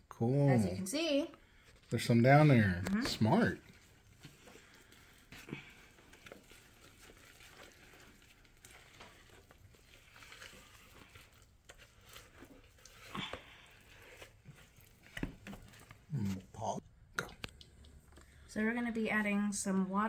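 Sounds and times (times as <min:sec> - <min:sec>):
wooden spoon stirring thick batter: 0:01.3 - 0:19.5.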